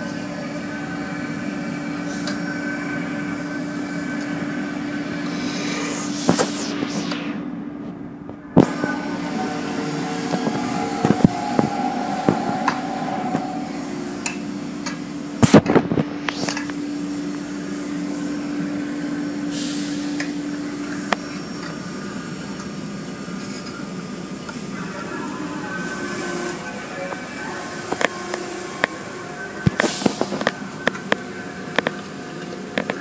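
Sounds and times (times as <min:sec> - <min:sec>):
machine hum: 0:03.4 - 0:19.4.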